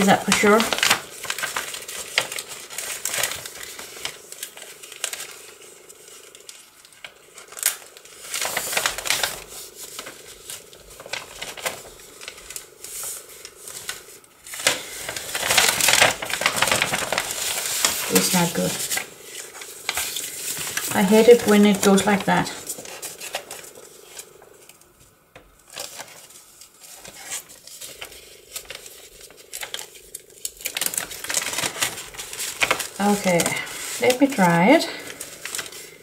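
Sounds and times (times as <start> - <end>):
paper rustling and crinkling: 0.0 - 36.0.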